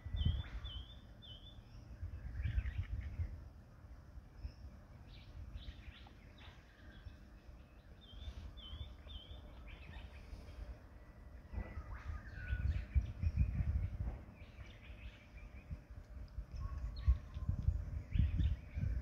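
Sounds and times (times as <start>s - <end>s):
birds chirping: 0.0s - 19.0s
low rumble: 1.9s - 19.0s.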